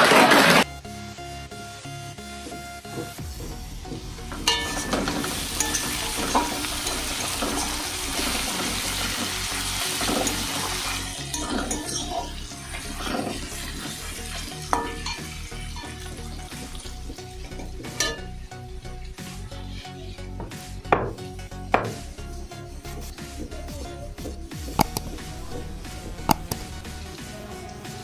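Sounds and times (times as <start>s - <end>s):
onions sizzling in oil: 3.4s - 19.2s
spatula scraping pan: 4.4s - 18.2s.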